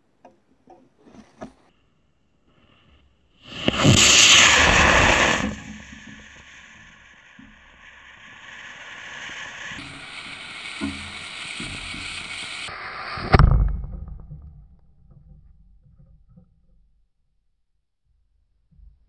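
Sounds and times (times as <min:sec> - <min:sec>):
steady rushing noise: 0:03.4 - 0:13.6
rocket ejection charge bang: 0:03.5 - 0:14.4.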